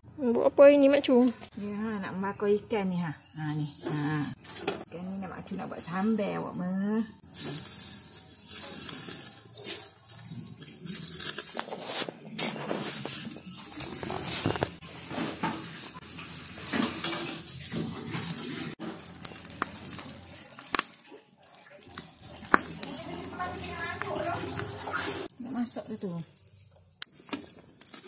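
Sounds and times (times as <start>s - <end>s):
crackles and clicks: 7.2s - 28.0s
fish sizzling on grill: 7.2s - 28.0s.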